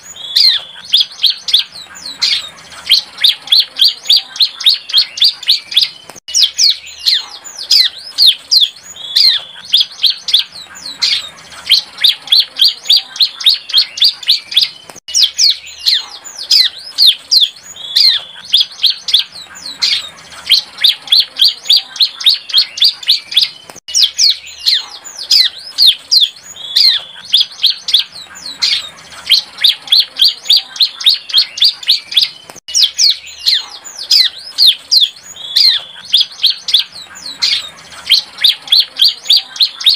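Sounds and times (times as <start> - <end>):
bird rapid high chirps: 0.0 - 39.9.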